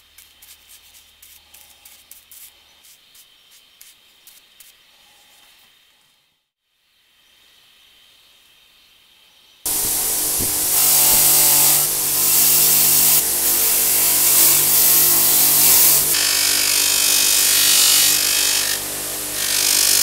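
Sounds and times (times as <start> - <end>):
bench grinder motor hum: 9.7 - 20.0.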